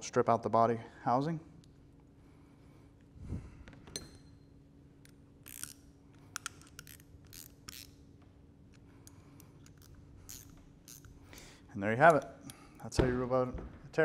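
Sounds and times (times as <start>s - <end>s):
steady low hum: 0.0s - 14.0s
wrench clicking and scraping metal: 5.1s - 8.0s, 9.0s - 11.2s.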